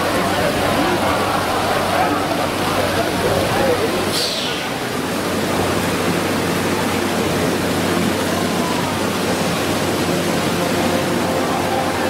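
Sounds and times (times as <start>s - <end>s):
water splashing from fountain: 0.0s - 12.0s.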